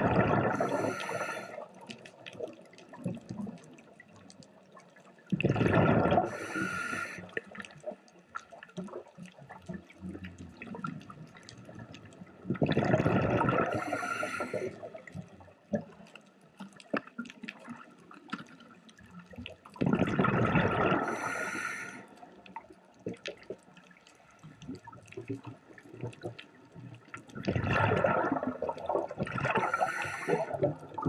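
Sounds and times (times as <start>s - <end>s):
regulator exhaust bubbles: 0.0s - 1.0s, 27.4s - 31.0s.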